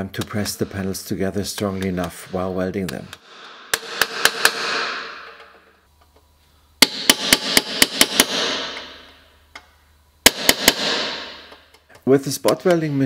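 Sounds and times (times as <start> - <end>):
hammer striking sheet steel: 3.2 - 5.5, 6.8 - 9.1, 10.3 - 11.5.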